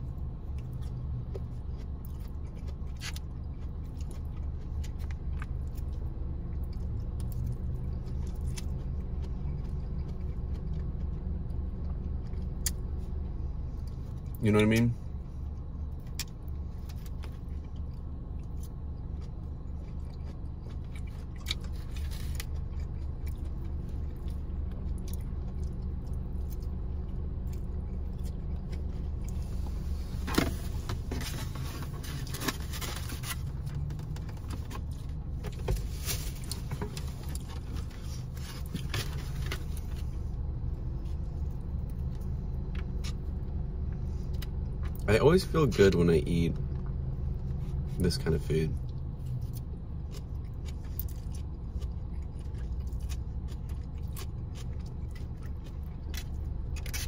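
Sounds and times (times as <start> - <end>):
chewing and slurping noodles: 15.9 - 40.2, 49.2 - 57.0
car cabin hum: 20.2 - 55.2.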